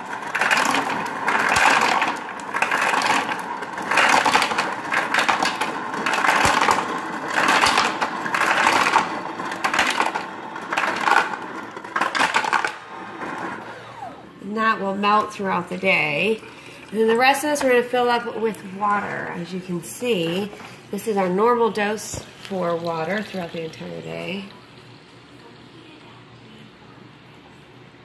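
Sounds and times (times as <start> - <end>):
ice cubes clattering into bottle: 0.0 - 12.8.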